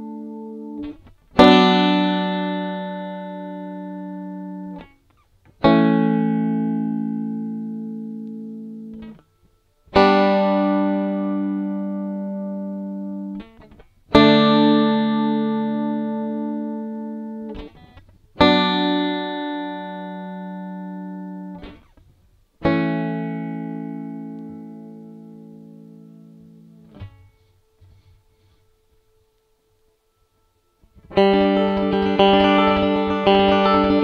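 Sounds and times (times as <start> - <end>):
banjo strumming chords: 30.9 - 34.0.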